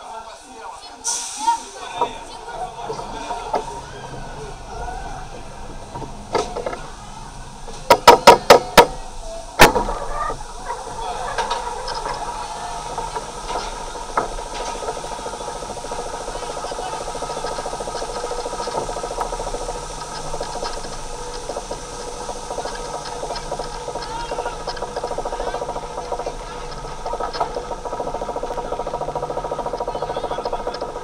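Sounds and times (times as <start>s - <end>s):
lift chain and ratchet clattering: 10.2s - 31.0s.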